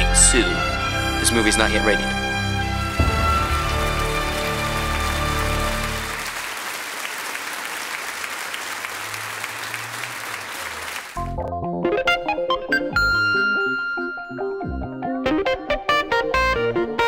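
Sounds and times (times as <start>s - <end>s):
background music: 0.0s - 6.4s, 11.2s - 17.0s
crowd applauding: 2.2s - 11.3s.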